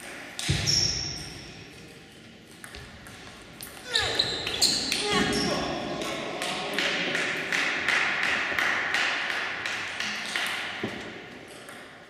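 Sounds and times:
table tennis ball bouncing: 6.0 - 12.0.

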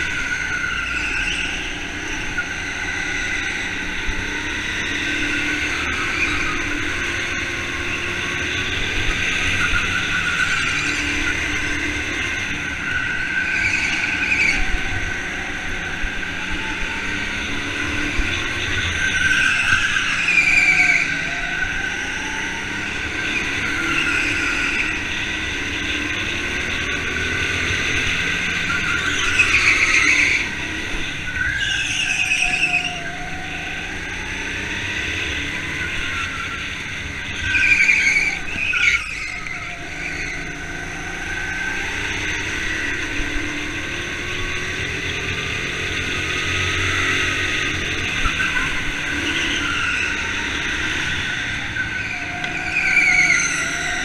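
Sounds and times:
kart engine: 0.0 - 54.0
karts passing: 0.0 - 54.0
tyres squealing: 47.8 - 54.0.

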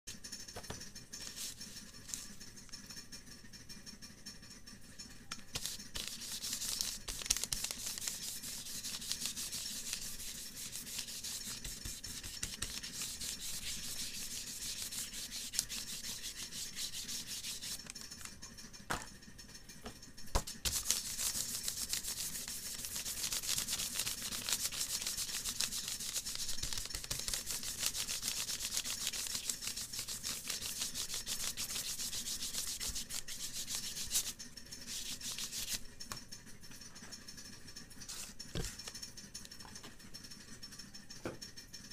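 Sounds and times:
pastel scratching on paper: 0.6 - 2.6, 5.5 - 18.1, 20.4 - 35.8, 38.0 - 39.0.

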